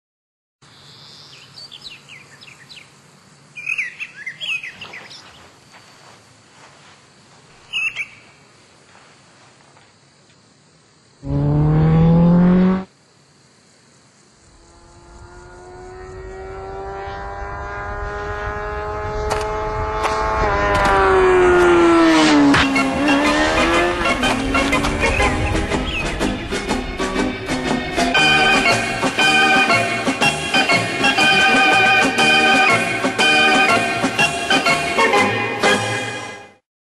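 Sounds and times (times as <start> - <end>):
birds chirping: 0.8 - 6.0, 7.6 - 8.4, 22.8 - 26.4
motorcycle at high revs passing: 11.2 - 12.9, 14.5 - 26.6.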